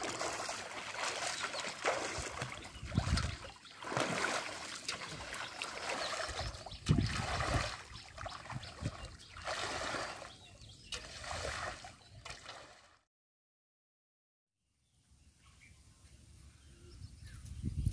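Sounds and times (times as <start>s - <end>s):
water splashing and trickling: 0.0s - 13.0s.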